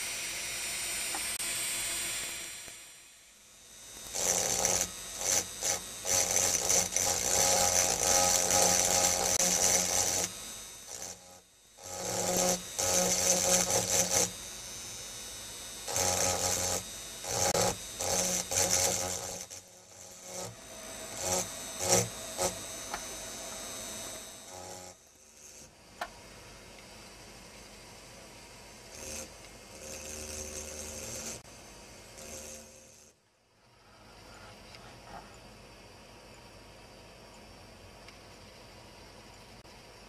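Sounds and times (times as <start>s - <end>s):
engraving drill grinding glass: 0.0s - 25.8s, 28.8s - 33.2s.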